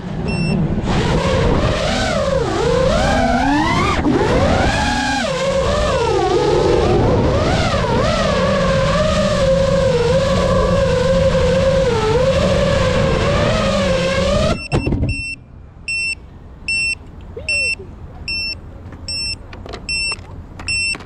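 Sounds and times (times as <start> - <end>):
drone motors whining: 0.0 - 15.4
short high electronic beeps: 0.3 - 0.6, 14.6 - 21.0.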